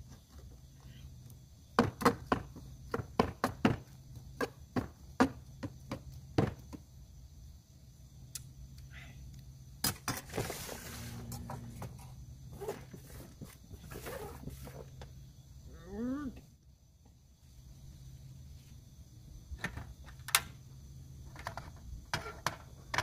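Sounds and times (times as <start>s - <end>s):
rustle and clatter: 9.8s - 15.2s, 21.2s - 23.0s.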